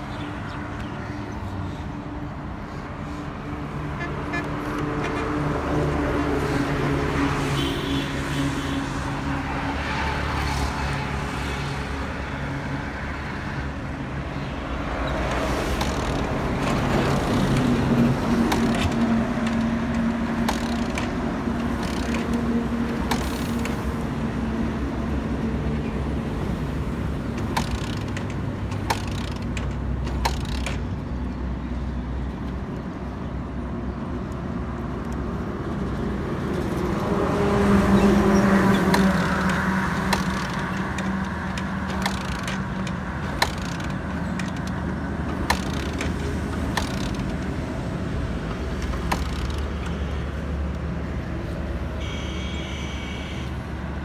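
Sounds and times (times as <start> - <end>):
traffic engines humming: 0.0 - 54.0
sharp clicks: 15.0 - 23.9, 27.2 - 31.3, 38.7 - 50.9.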